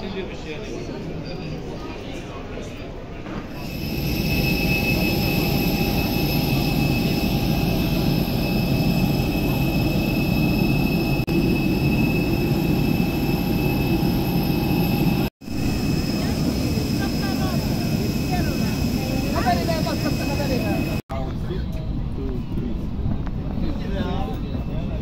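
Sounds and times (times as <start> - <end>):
jet aircraft rumble and whine: 3.4 - 25.0.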